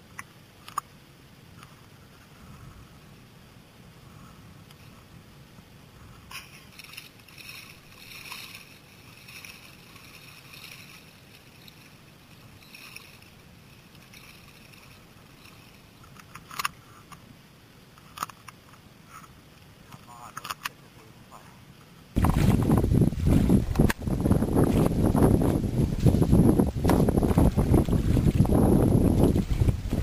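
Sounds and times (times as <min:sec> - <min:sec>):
low wind rumble: 0:01.2 - 0:18.2, 0:22.1 - 0:30.0
sea water lapping and splashing: 0:04.2 - 0:17.1, 0:22.2 - 0:30.0.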